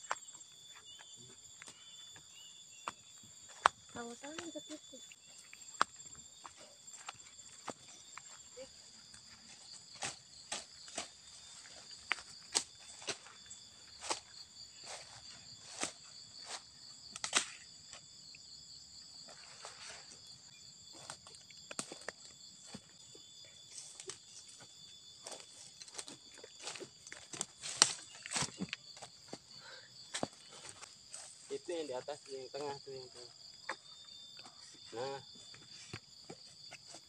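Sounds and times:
crickets chirping: 0:00.0 - 0:37.0
footsteps through grass: 0:05.2 - 0:16.7.

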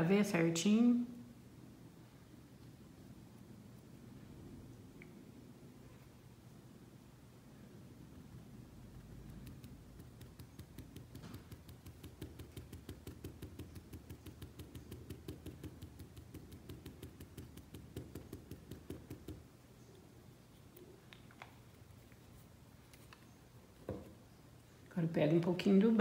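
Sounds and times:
paintbrush tapping on fabric: 0:09.3 - 0:19.4.

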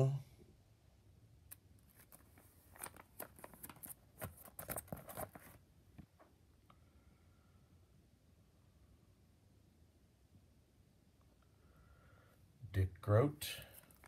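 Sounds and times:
plastic binder page crinkling: 0:01.8 - 0:05.6, 0:13.7 - 0:14.0.

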